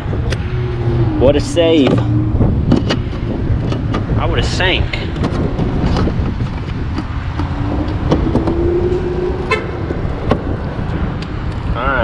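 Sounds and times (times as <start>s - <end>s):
low traffic rumble: 0.0s - 12.0s
car horn: 9.3s - 10.0s.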